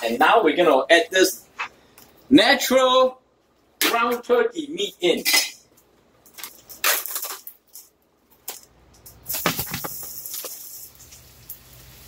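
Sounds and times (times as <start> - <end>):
oil sizzling: 9.2 - 12.0.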